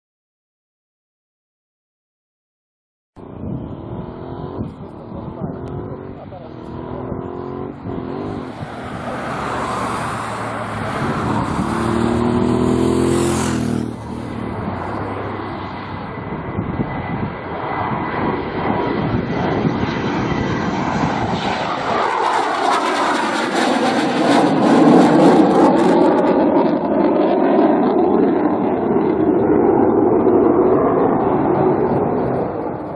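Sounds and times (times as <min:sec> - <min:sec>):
jet engines roaring: 0:03.2 - 0:32.9
phasing jet whoosh: 0:07.7 - 0:26.4.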